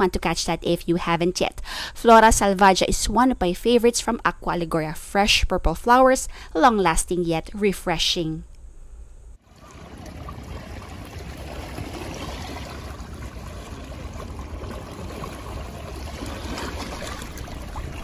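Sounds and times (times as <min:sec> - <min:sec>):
sea water lapping on rocks: 0:09.4 - 0:18.0.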